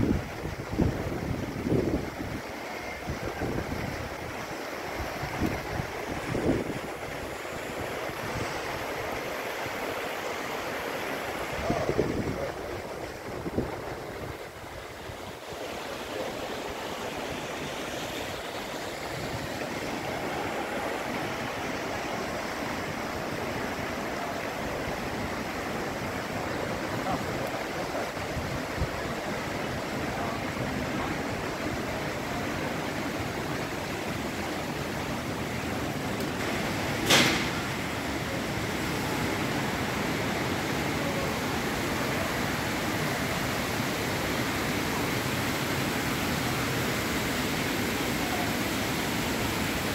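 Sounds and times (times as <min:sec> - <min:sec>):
fountain water splashing: 0:00.0 - 0:49.9
sharp knock: 0:37.0 - 0:37.6.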